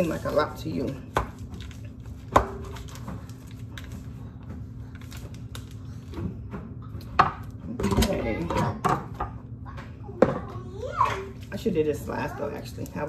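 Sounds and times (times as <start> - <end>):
plastic wrapper crinkling: 0.0 - 6.1.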